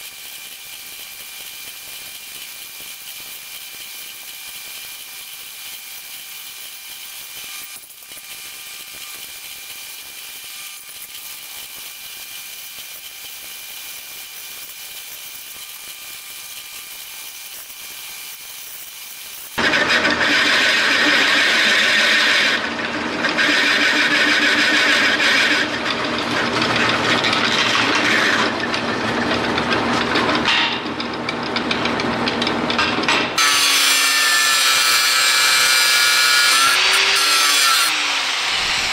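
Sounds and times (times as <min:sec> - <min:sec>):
drill bit grinding steel: 0:00.0 - 0:30.4, 0:33.4 - 0:38.9
angle grinder cutting steel: 0:00.0 - 0:31.1, 0:33.4 - 0:38.9
drill press whirring: 0:19.2 - 0:33.8, 0:37.9 - 0:38.9.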